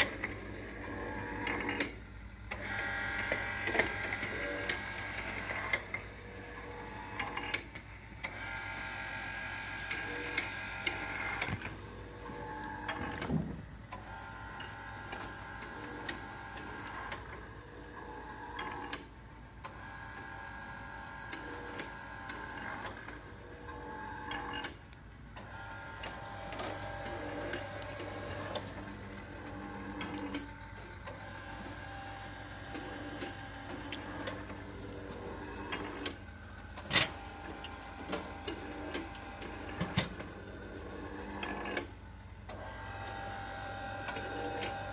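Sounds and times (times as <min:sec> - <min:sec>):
donut machine motor whine: 0:00.0 - 0:44.9.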